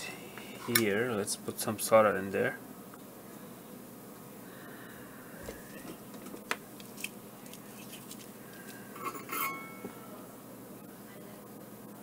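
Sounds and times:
metal tools clinking: 9.0 - 9.8.

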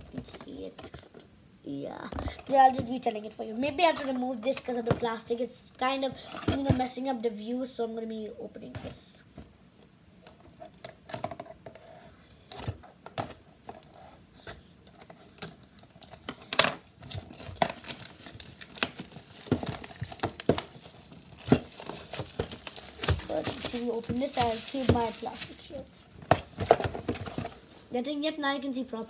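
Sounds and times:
plastic shrink-wrap crinkling: 14.9 - 25.9.

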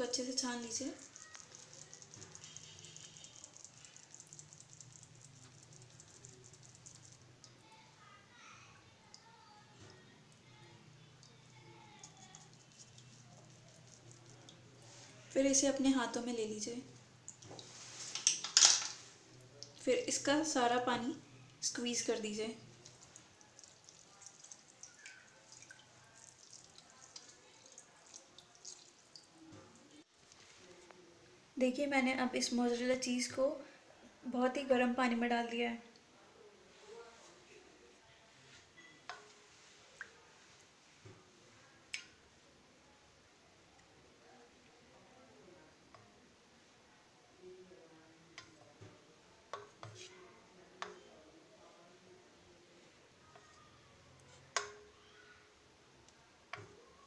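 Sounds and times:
whey dripping into steel bowl: 0.7 - 7.6, 11.2 - 15.1, 22.7 - 29.6, 54.2 - 55.0
quick even ticking: 0.9 - 7.2
wet squelching of cheese curd: 0.9 - 7.6, 22.6 - 30.8.

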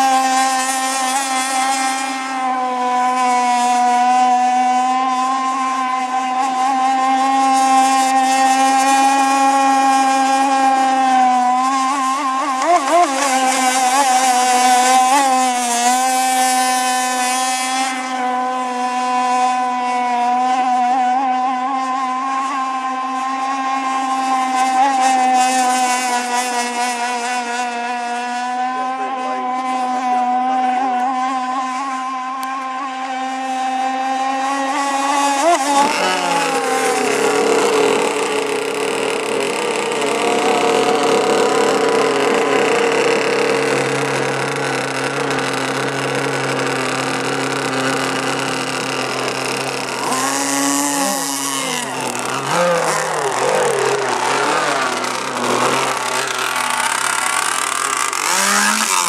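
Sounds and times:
model speedboat motor whining: 0.0 - 59.0.

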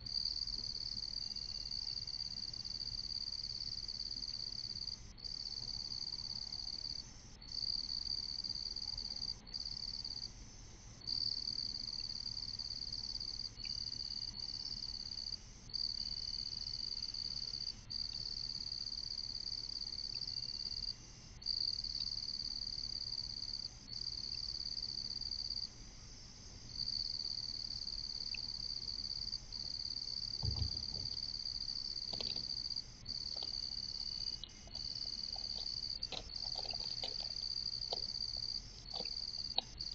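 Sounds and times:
insects trilling: 26.7 - 39.9.

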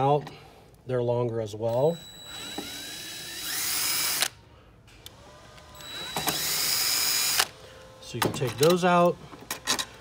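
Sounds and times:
cordless drill whining: 1.7 - 4.4, 5.0 - 7.6.

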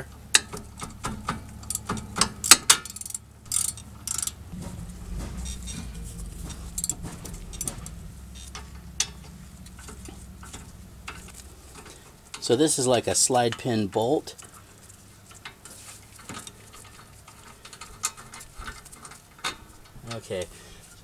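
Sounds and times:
low steady hum: 0.0 - 17.0
ratchet clicking: 1.6 - 4.4.

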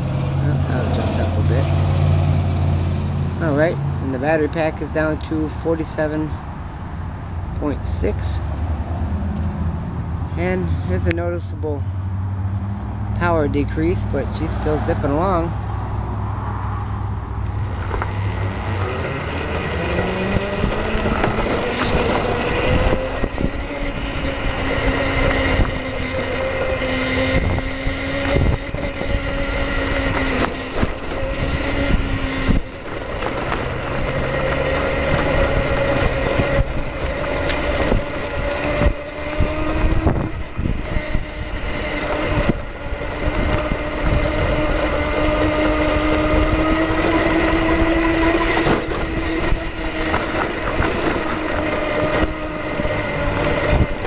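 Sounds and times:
electric motor whining: 0.0 - 3.6, 16.6 - 54.0
road and wind noise: 0.0 - 54.0.

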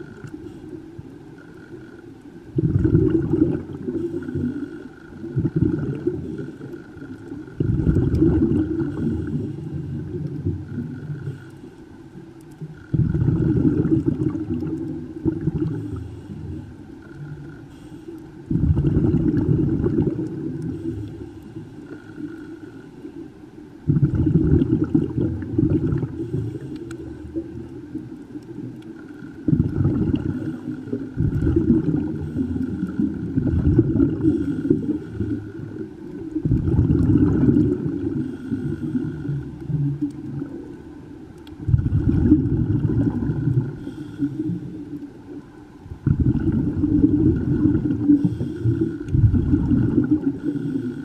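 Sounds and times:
underwater regulator bubbles gurgling: 0.0 - 51.0.

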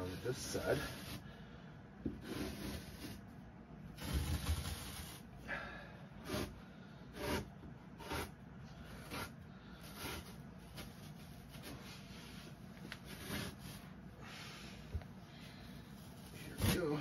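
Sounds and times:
carpet tearing off wood: 4.0 - 5.3, 16.2 - 17.0.

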